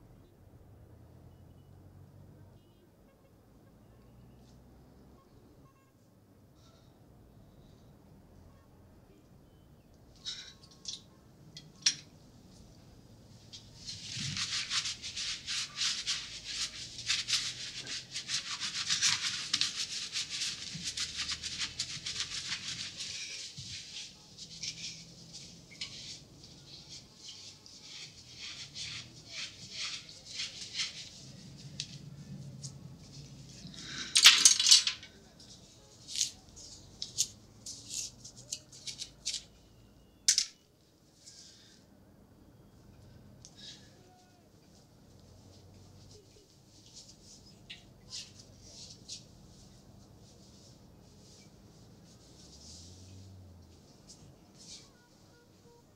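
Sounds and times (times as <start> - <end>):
towel rubbing against hands: 13.4 - 34.0, 45.3 - 55.4
fingers rustling through hair: 13.6 - 33.7.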